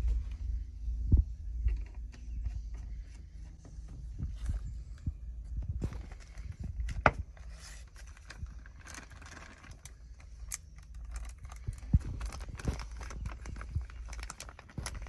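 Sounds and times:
plastic bag crinkling: 0:05.8 - 0:15.0.

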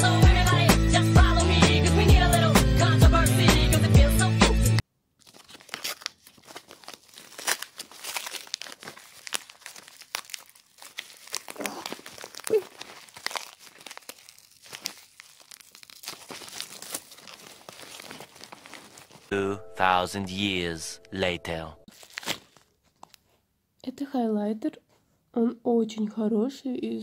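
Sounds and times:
pop music: 0:00.0 - 0:04.8, 0:19.3 - 0:21.8
packaging crinkling and tearing: 0:05.2 - 0:19.3, 0:21.9 - 0:23.4.

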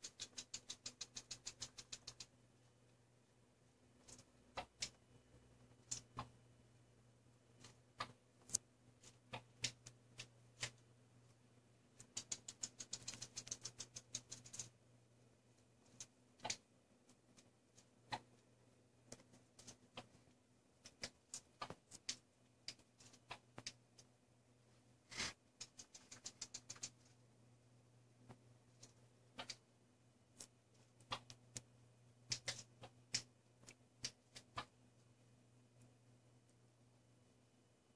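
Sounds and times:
rapid small ticks: 0:00.0 - 0:02.4, 0:05.7 - 0:06.4, 0:07.6 - 0:10.8, 0:12.0 - 0:14.8, 0:15.8 - 0:18.4, 0:20.8 - 0:24.1, 0:25.5 - 0:27.2, 0:28.3 - 0:29.7, 0:30.4 - 0:34.8
faint scattered clicks: 0:00.0 - 0:03.0, 0:12.0 - 0:14.8, 0:19.0 - 0:24.2, 0:25.5 - 0:27.2, 0:30.4 - 0:34.8.

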